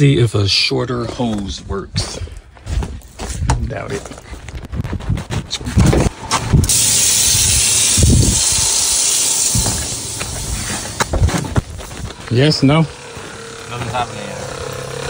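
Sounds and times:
thumps like footsteps: 1.1 - 6.7, 9.4 - 12.4.

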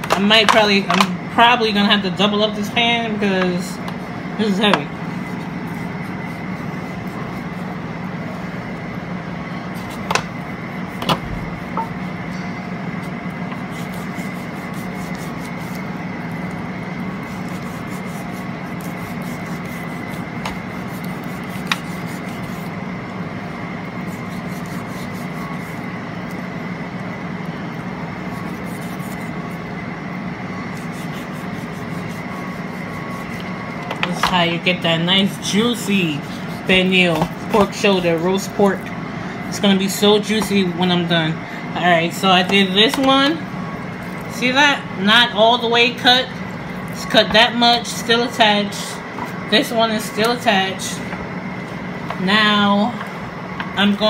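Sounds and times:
steady hum: 0.0 - 54.0
knife cutting raw meat: 4.6 - 7.8, 9.7 - 12.0, 13.0 - 15.9, 17.1 - 22.8, 24.0 - 25.9, 28.2 - 29.6, 30.6 - 34.4, 35.4 - 38.8.

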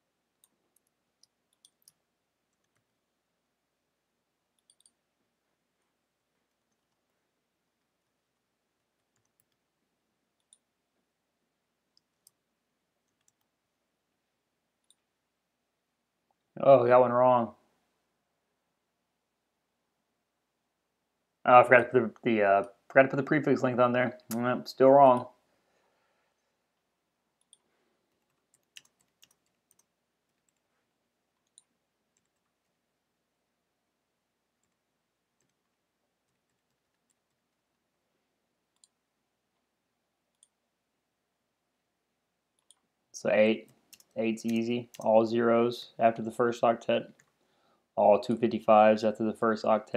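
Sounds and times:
keyboard and mouse clicks: 0.4 - 2.9, 4.5 - 5.0, 6.4 - 7.2, 8.8 - 9.6, 10.4 - 10.7, 11.9 - 12.4, 13.0 - 13.5, 14.8 - 15.1, 27.4 - 30.6, 31.3 - 32.8, 35.4 - 37.8, 38.7 - 39.6, 40.3 - 40.6, 42.5 - 42.9, 43.6 - 45.1
computer keyboard clicks: 4.6 - 5.0, 27.4 - 30.6, 43.9 - 45.1.

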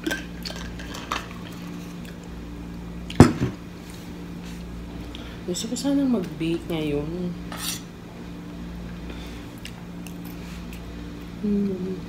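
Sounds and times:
steady low hum: 0.0 - 12.0
spoon scraping a plate: 7.5 - 7.9
soft chewing: 9.5 - 11.4
person humming: 11.4 - 12.0.

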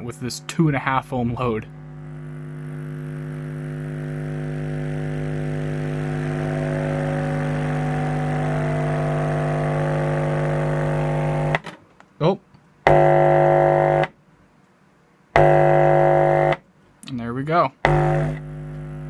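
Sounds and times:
buzzy low test tone from subwoofer: 0.0 - 11.6, 12.9 - 14.1, 15.4 - 16.6, 17.8 - 19.0.

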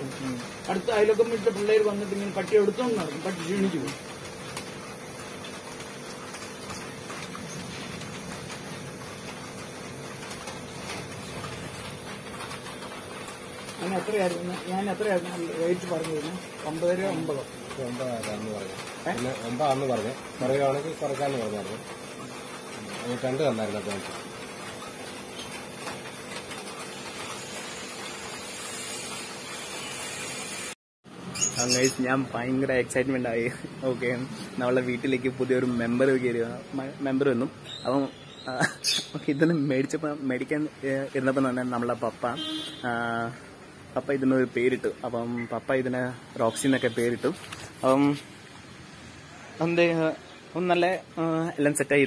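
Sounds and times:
paper rustling and clicking: 0.0 - 27.4, 46.8 - 48.2.

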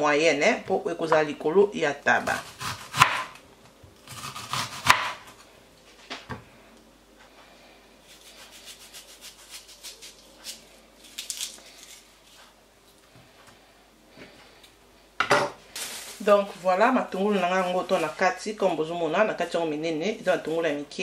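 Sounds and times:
knife slicing onion: 2.2 - 3.4, 4.0 - 5.4, 8.0 - 12.5
onion rings rubbing and crackling: 8.0 - 13.0.

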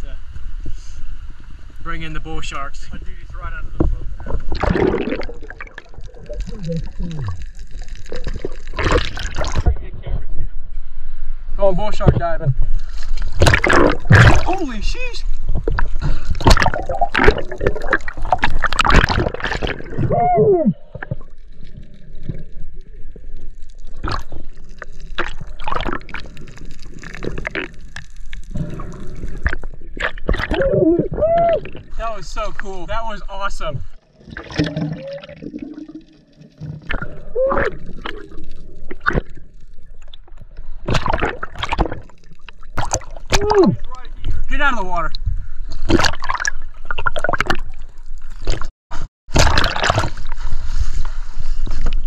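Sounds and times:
underwater bubbles and rushing water: 0.2 - 52.0
pops and clicks: 3.8 - 9.7
water splashing against boat hull: 13.0 - 20.2, 38.9 - 44.0.

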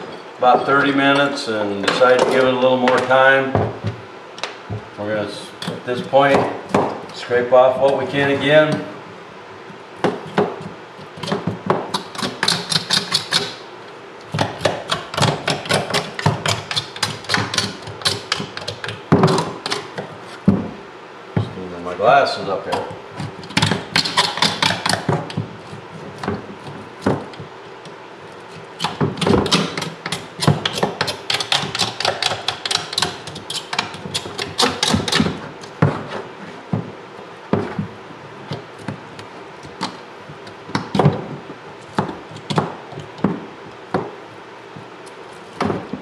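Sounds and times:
tool scraping on bone: 10.2 - 13.6, 14.4 - 20.4, 22.7 - 26.8, 28.3 - 35.4.

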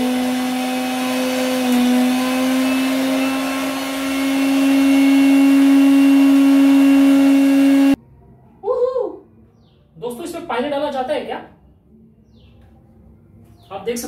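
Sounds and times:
mixer grinder motor whine: 0.0 - 8.0.

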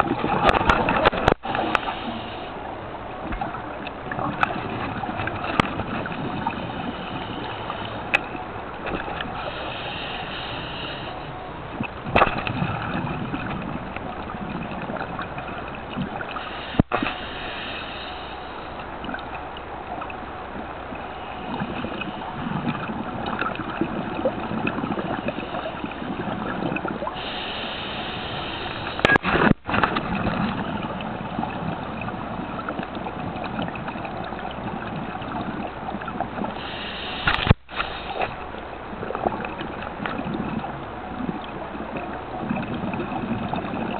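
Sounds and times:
underwater bubbles gurgling: 0.0 - 43.9
hiss of exhaled bubbles: 21.1 - 32.5, 34.7 - 38.4.

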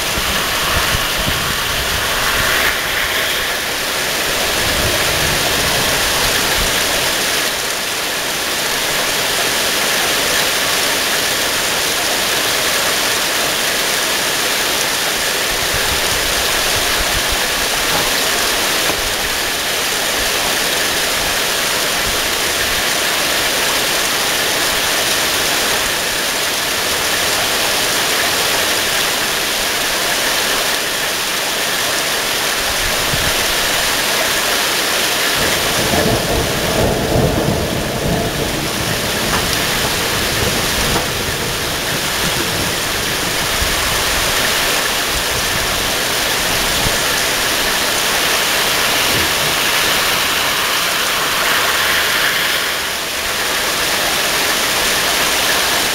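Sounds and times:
thunder rumble: 0.0 - 7.3, 35.3 - 54.9
rain on foliage: 0.0 - 55.9.

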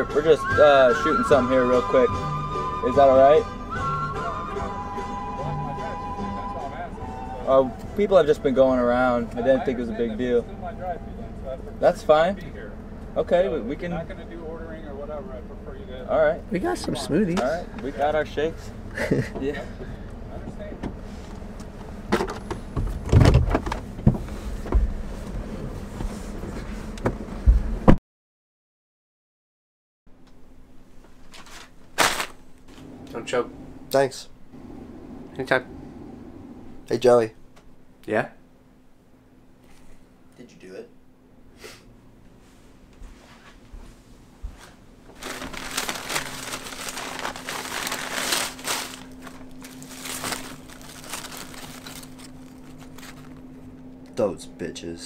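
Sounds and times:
car engine idling: 6.6 - 26.4, 32.7 - 39.6
knocks and rustles of passengers: 16.6 - 28.0, 31.0 - 33.6, 34.6 - 36.9
paper bag rustling: 31.2 - 33.0, 45.1 - 53.6
foil wrapper crinkling: 31.3 - 32.4, 45.1 - 53.5.

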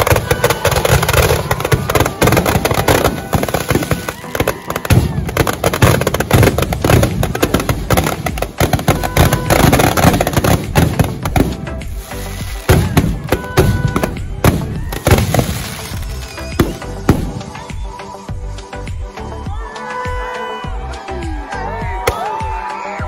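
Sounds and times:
firecrackers crackling and banging: 0.0 - 17.6
music: 0.0 - 23.0.

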